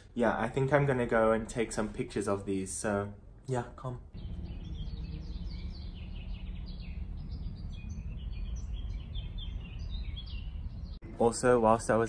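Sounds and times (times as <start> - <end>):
small birds chirping: 4.1 - 12.0
low rumble: 4.2 - 11.1.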